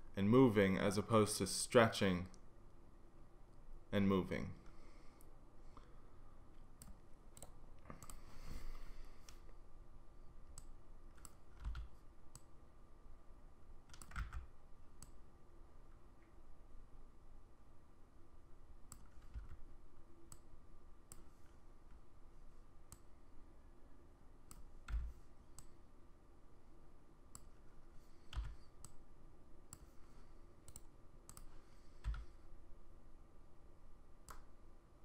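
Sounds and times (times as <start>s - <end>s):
mouse and keyboard clicks: 30.6s - 32.3s.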